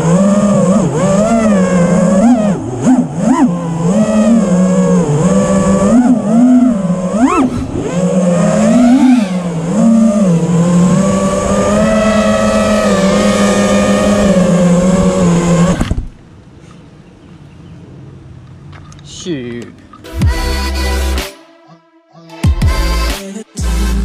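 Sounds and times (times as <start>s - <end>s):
quadcopter motors whining: 0.0s - 16.2s.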